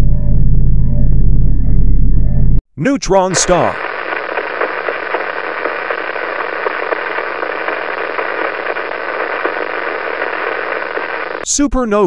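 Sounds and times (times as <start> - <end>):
steady static hiss: 3.3 - 11.5.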